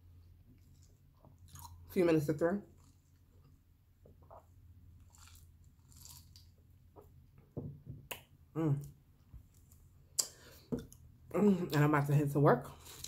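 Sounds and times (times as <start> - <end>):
person chewing: 0.6 - 1.9, 2.7 - 7.2.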